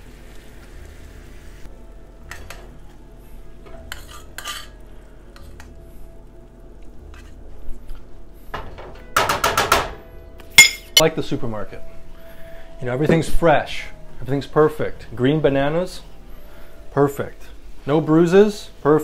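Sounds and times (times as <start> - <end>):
metal utensil scraping frying pan: 3.7 - 4.8.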